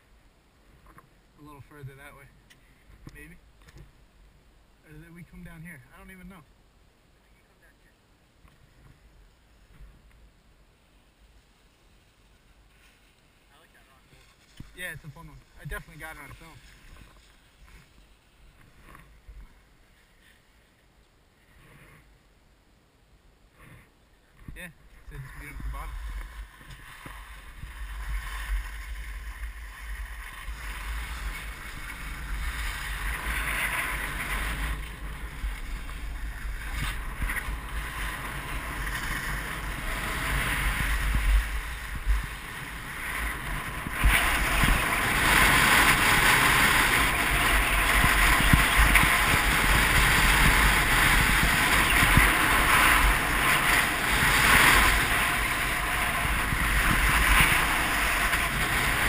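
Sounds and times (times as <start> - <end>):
skis hissing over packed snow: 10.7 - 20.8, 25.1 - 59.0
wind buffeting microphone: 24.4 - 59.0.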